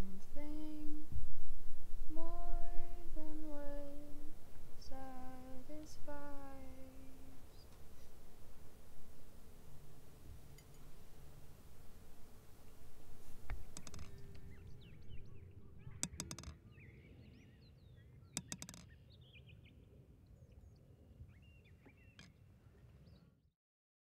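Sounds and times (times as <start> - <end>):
low background rumble: 0.0 - 17.4
small birds chirping: 2.2 - 23.4
sharp rattling clicks: 13.5 - 14.6, 15.9 - 16.6, 18.4 - 18.9.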